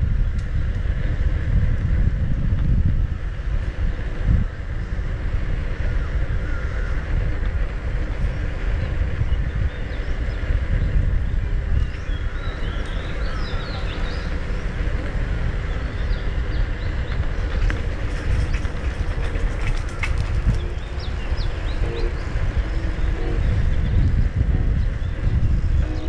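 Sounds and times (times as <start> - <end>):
wind rumble on microphone: 0.0 - 26.0
birds chirping: 5.5 - 26.0.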